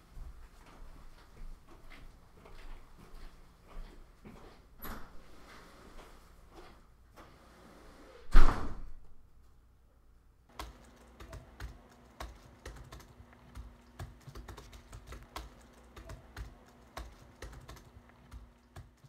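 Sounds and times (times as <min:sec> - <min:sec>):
faint steady hum: 0:09.3 - 0:19.0
laptop keyboard typing: 0:10.5 - 0:19.0.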